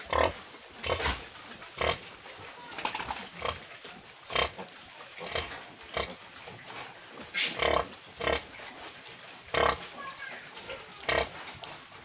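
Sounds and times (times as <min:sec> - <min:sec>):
pig grunting: 0:00.0 - 0:02.1, 0:03.2 - 0:03.7, 0:04.3 - 0:06.2, 0:07.3 - 0:08.6, 0:09.5 - 0:10.0, 0:10.8 - 0:11.5.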